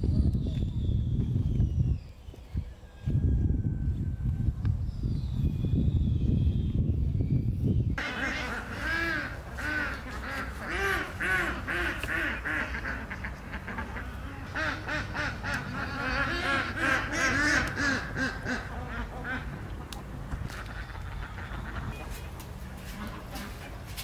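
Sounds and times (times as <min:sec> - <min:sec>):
fowl calling: 0:08.0 - 0:23.8.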